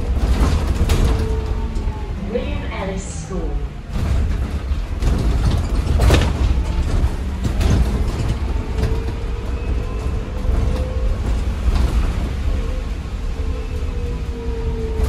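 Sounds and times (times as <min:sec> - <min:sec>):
body and fitting rattles: 0:00.0 - 0:02.4, 0:03.9 - 0:12.7
bus road rumble: 0:00.0 - 0:15.0.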